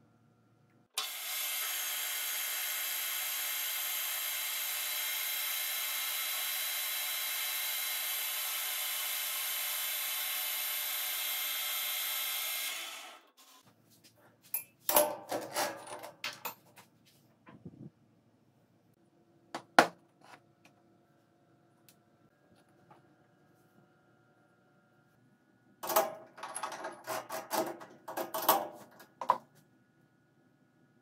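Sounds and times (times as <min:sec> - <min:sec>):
knocks and clicks at chuck: 0:25.8 - 0:29.5.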